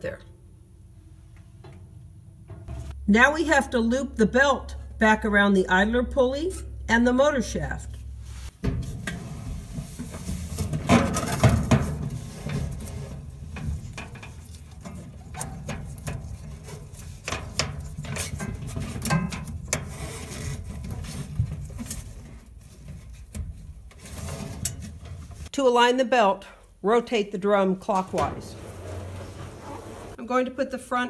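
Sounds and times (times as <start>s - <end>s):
belt rubbing and clicking on pulley: 12.1s - 25.5s.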